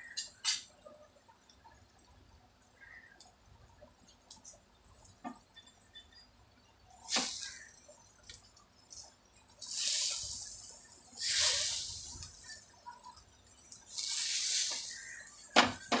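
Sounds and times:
spatula scraping hot griddle: 7.0s - 7.8s, 9.0s - 12.7s, 13.9s - 15.6s.

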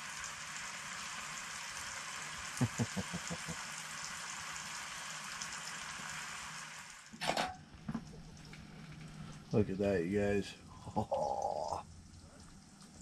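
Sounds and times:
bacon sizzling in a skillet: 0.0s - 7.2s.

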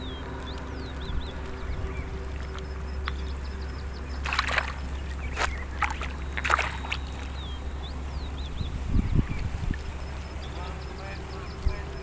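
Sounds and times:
water splashing and sloshing: 3.9s - 8.2s.

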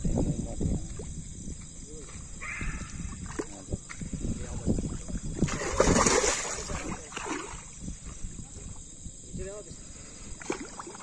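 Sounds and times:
water splashing and sloshing: 3.0s - 3.7s, 4.7s - 9.0s, 10.0s - 11.0s.

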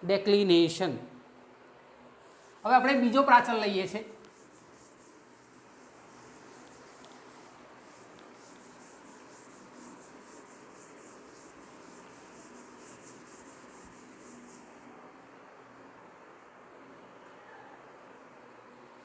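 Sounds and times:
cloth wiping chalkboard: 2.3s - 14.9s.

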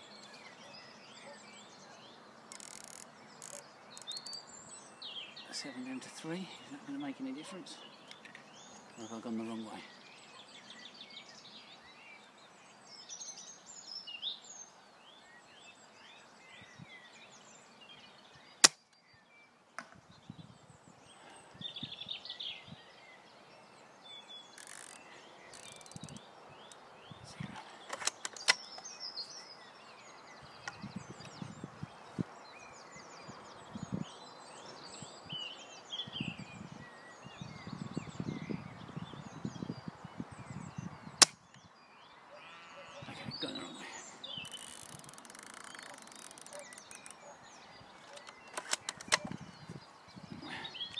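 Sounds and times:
birds singing: 0.0s - 50.9s
rifle handling clicks: 2.5s - 4.1s, 27.9s - 28.8s, 48.1s - 49.4s
airsoft rifle shot crack: 18.6s - 18.8s, 41.2s - 41.4s.

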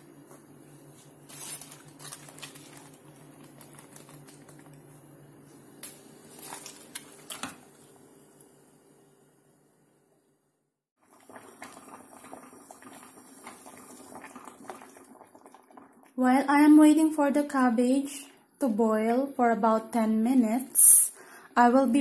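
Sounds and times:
cabbage leaves rustling: 1.2s - 4.6s.

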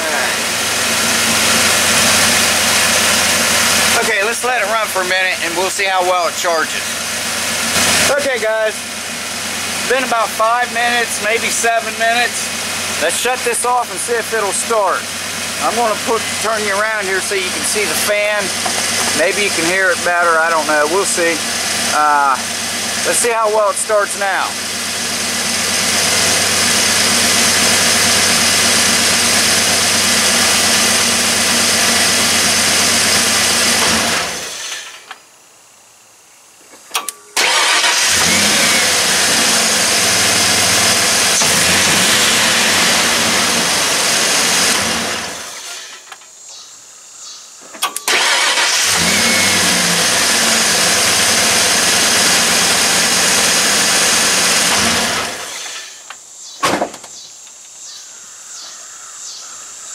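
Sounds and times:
truck engine idling: 0.0s - 34.7s, 37.3s - 46.1s
engine cranking: 36.9s - 46.2s, 47.8s - 56.1s.

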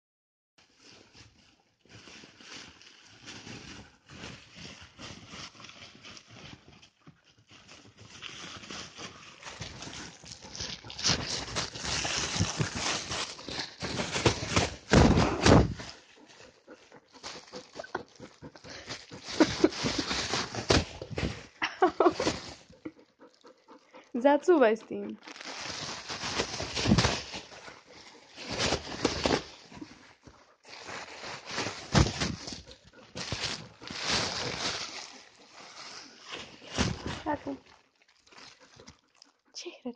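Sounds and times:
foil wrapping paper crinkling: 0.6s - 23.0s, 24.9s - 39.2s.

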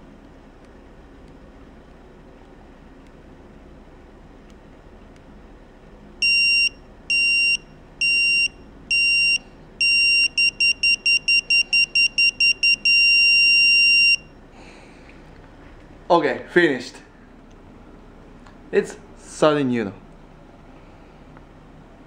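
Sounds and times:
torque wrench electronic beeps: 6.2s - 14.3s.

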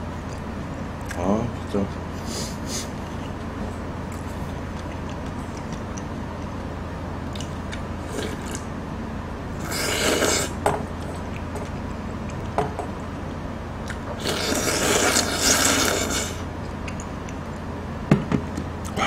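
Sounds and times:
steady low hum: 0.0s - 19.0s
slurping noodles: 9.6s - 10.6s, 14.2s - 16.5s.

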